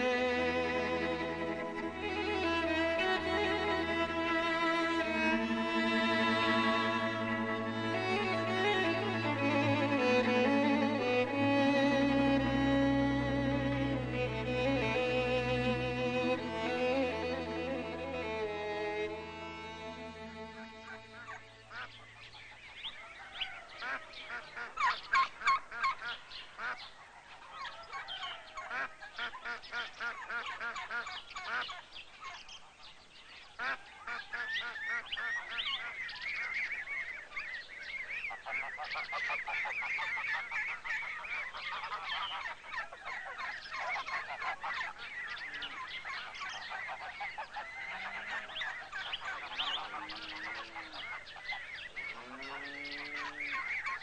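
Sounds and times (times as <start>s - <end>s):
geese honking: 0.0s - 22.1s, 38.3s - 54.0s.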